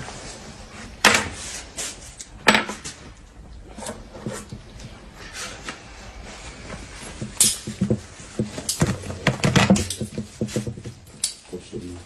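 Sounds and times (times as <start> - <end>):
plastic and gauze wrapping rustling: 4.9 - 12.0.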